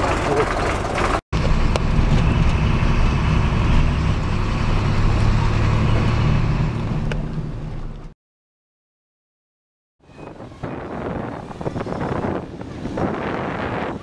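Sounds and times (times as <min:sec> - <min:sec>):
road noise: 0:00.0 - 0:08.2, 0:10.1 - 0:14.0
vehicle engine hum: 0:00.0 - 0:08.2.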